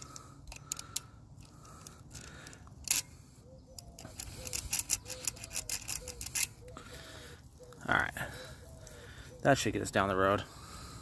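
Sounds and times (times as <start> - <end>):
metal file scraping contacts: 3.8 - 6.6.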